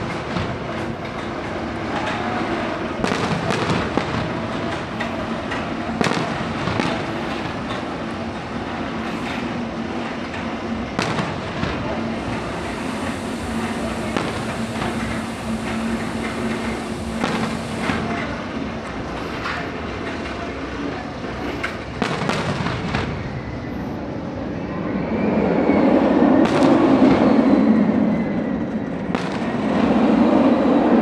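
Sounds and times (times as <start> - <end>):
fireworks booming: 0.0 - 0.8, 3.0 - 7.8, 10.9 - 18.4, 21.9 - 23.3, 26.4 - 27.3, 29.1 - 30.0
roller coaster rumbling on track: 0.0 - 31.0.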